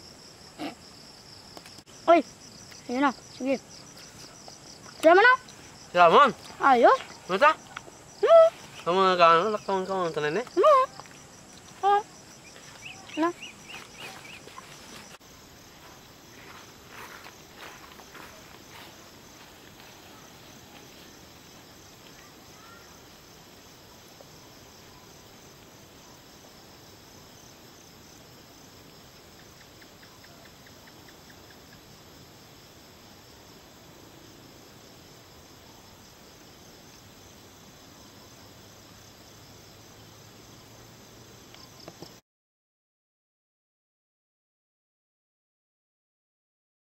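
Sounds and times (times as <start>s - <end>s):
insect chorus trilling: 0.0s - 42.2s.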